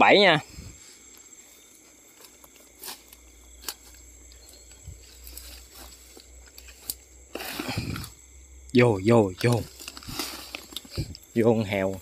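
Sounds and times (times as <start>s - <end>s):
grass rustling: 0.0s - 12.0s
night insects trilling: 0.0s - 12.0s
twigs snapping: 2.2s - 12.0s.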